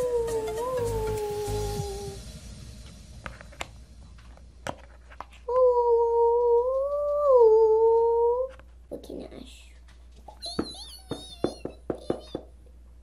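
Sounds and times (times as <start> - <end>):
child humming: 0.0 - 2.2, 5.5 - 8.5.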